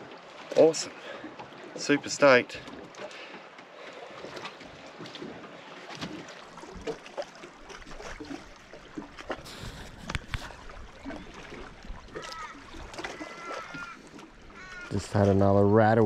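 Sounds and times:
waves lapping against metal hull: 0:00.0 - 0:16.0
bird calling: 0:12.0 - 0:15.0.

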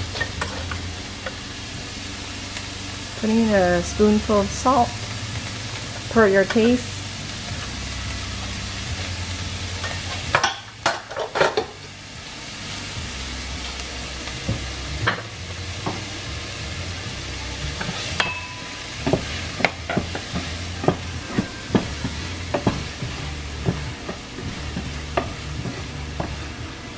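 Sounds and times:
onions sizzling in hot oil: 0:00.0 - 0:26.9
spoon tapping and scraping pan: 0:17.8 - 0:26.5
wooden spoon knocking on pan: 0:19.0 - 0:26.5.

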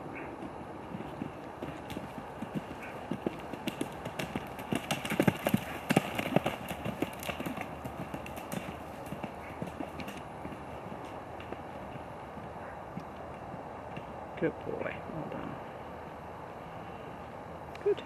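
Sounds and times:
hoofbeats on grass: 0:00.1 - 0:14.2.

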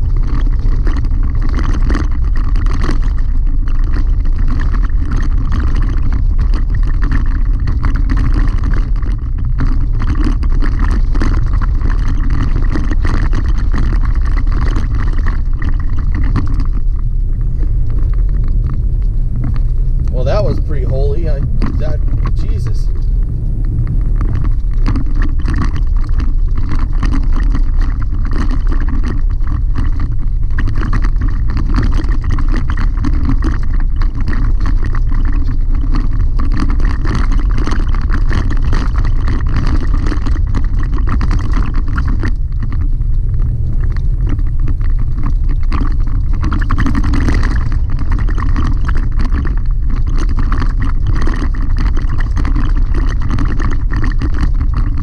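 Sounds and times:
rattling and clicking from gravel: 0:00.0 - 0:23.2, 0:24.1 - 0:55.0
tyres and engine rumbling: 0:16.8 - 0:26.5.

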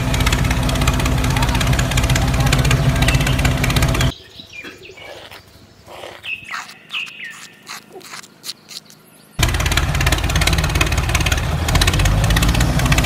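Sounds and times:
engine idling: 0:00.0 - 0:04.2, 0:09.4 - 0:13.0
birds chirping: 0:00.0 - 0:11.2
shovel scooping dry cement: 0:06.0 - 0:09.0.

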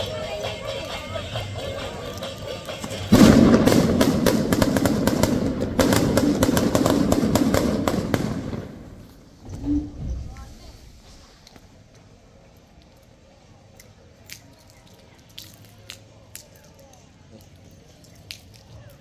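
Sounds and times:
firecrackers crackling: 0:00.5 - 0:09.6.

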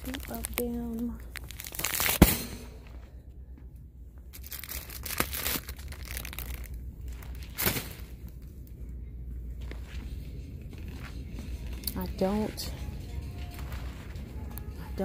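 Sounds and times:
plastic wrap crinkling: 0:00.0 - 0:02.2, 0:04.3 - 0:08.4.

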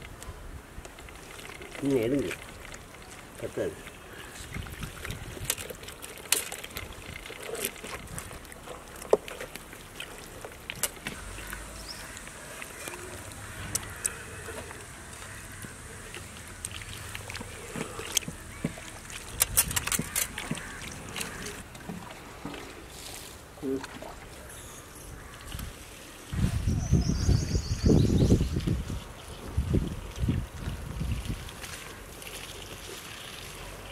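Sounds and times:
hands squelching marinade into meat: 0:03.5 - 0:21.6.

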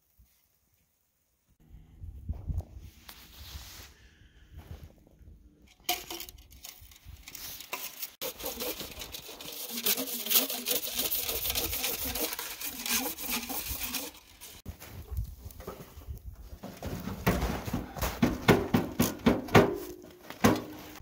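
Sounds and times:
metal pipes scraping together: 0:05.8 - 0:14.7.

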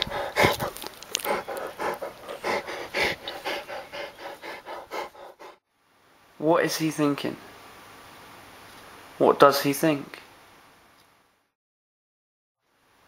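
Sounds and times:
dog panting: 0:00.0 - 0:05.6.

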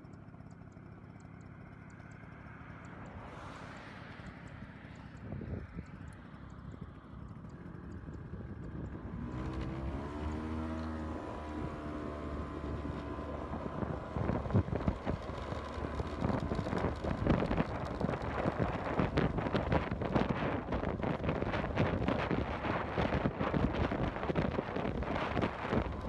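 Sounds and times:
motorcycle engine pulling away: 0:00.1 - 0:26.0
wind noise on microphone: 0:05.1 - 0:06.2, 0:06.8 - 0:26.0.

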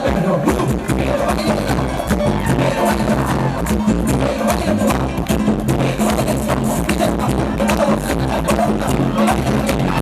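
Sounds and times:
merengue dance music: 0:00.0 - 0:10.0.

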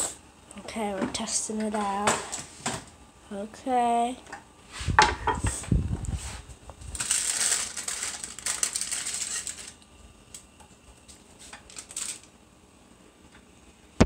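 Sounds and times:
batter sizzling in hot oil: 0:07.0 - 0:09.9.

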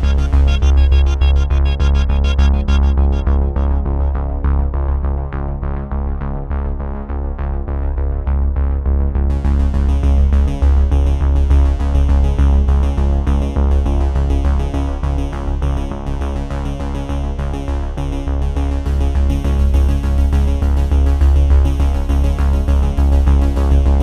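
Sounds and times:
pulsing beat with strong bass: 0:00.0 - 0:06.2, 0:18.8 - 0:24.0
synthesizer: 0:00.0 - 0:24.0.

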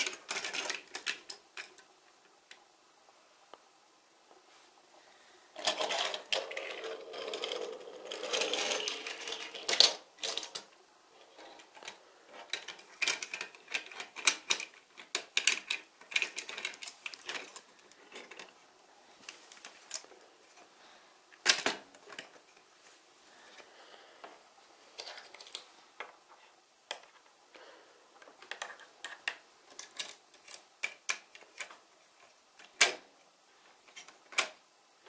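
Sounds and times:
plastic blocks clicking and rattling: 0:00.0 - 0:02.6, 0:05.6 - 0:18.6, 0:19.2 - 0:20.7, 0:21.4 - 0:22.7, 0:24.9 - 0:26.2, 0:28.2 - 0:33.1, 0:33.8 - 0:34.6.

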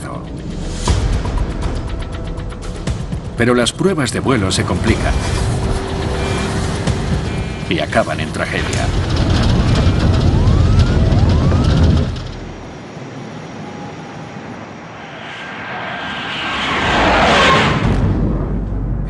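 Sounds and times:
jet aircraft rumble: 0:03.3 - 0:19.0
jet plane rushing overhead: 0:04.0 - 0:19.0.

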